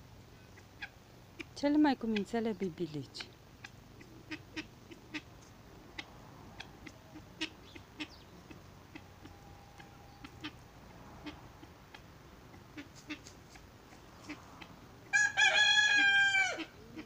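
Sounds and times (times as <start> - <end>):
guineafowl clucking: 0.2 - 17.0.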